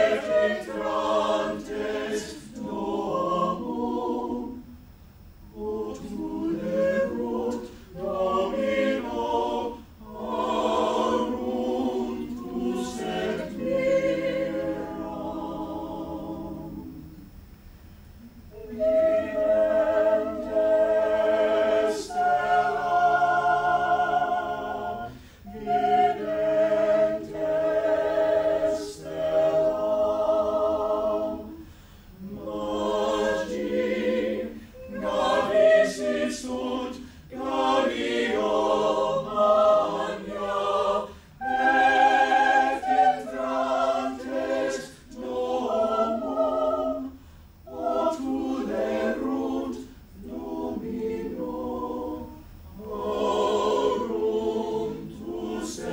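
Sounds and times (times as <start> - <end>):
chamber choir singing a cappella: 0.0 - 4.8, 5.5 - 17.4, 18.2 - 55.9
singers breathing: 7.6 - 8.0, 25.1 - 25.5, 31.5 - 32.2, 34.5 - 34.9, 37.0 - 37.3, 41.0 - 41.4, 44.8 - 45.2, 47.1 - 47.6, 49.8 - 50.2.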